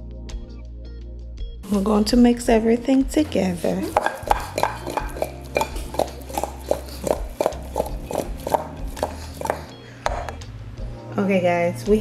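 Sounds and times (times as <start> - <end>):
chicken clattering in glass bowl: 3.9 - 9.7.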